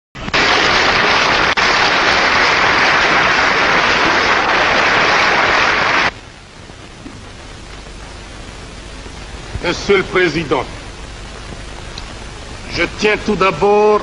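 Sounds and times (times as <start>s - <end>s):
film soundtrack hiss: 0.2s - 14.0s
crowd applauding: 0.3s - 6.1s.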